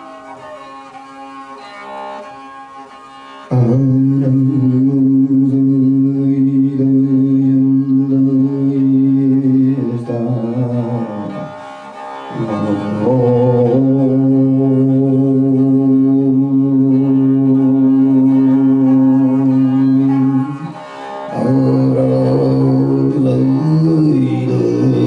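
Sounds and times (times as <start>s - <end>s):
bowed fiddle: 0.0s - 25.0s
throat singing drone: 0.0s - 25.0s.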